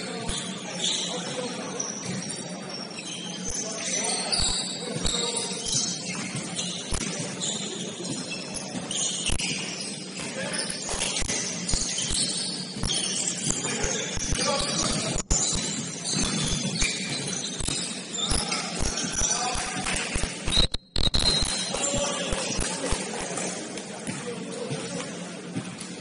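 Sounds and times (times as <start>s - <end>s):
sneakers squeaking: 0.0s - 26.0s
basketball bouncing: 10.9s - 17.9s, 24.0s - 24.9s.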